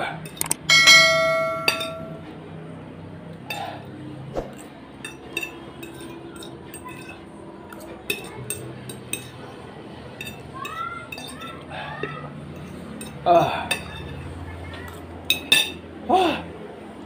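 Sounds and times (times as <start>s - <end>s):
cutlery clinking on a plate: 0.3s - 2.2s, 5.0s - 9.4s, 10.2s - 11.5s, 14.9s - 15.8s.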